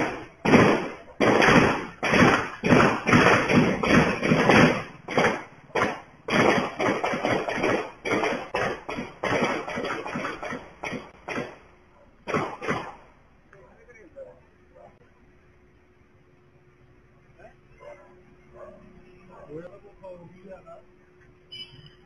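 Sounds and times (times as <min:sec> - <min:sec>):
sharp bangs or knocks: 0:00.0 - 0:11.6.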